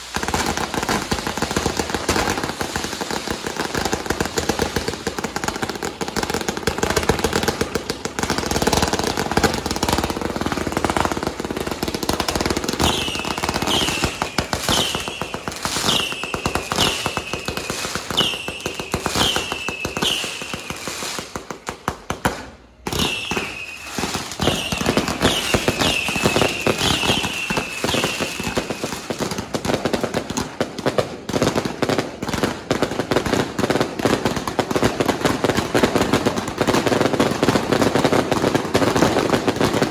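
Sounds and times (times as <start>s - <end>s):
firecrackers crackling: 0.0s - 39.9s
falling firework whistles: 12.6s - 21.6s, 22.8s - 29.5s.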